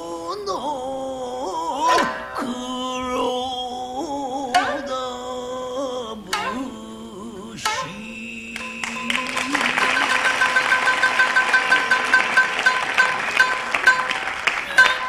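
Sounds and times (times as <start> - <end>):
man singing wavering notes: 0.0 - 12.8
shamisen plucks: 1.8 - 3.2, 4.4 - 5.2, 6.3 - 6.8, 7.6 - 15.0.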